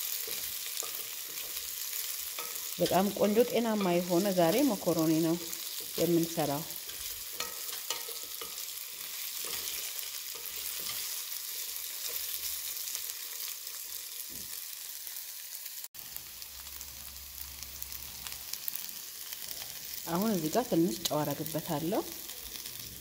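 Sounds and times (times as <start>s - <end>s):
wooden spoon scraping a pan: 0.0s - 13.8s
vegetables sizzling in a wok: 0.0s - 23.0s.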